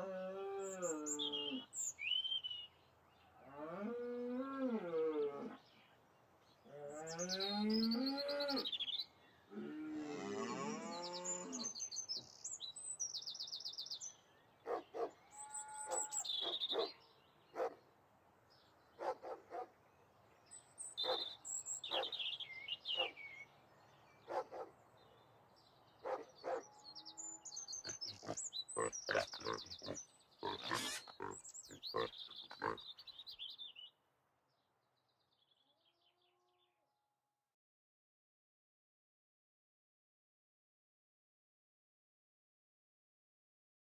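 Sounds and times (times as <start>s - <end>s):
cow mooing: 9.6s - 11.6s
birds chirping: 10.4s - 17.9s, 18.5s - 33.9s.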